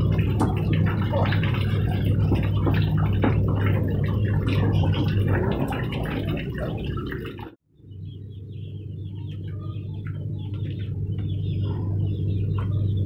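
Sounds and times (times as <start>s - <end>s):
hose water splashing: 0.0s - 7.6s
metal knocks and drips: 0.0s - 7.6s
steady low hum: 0.0s - 13.0s.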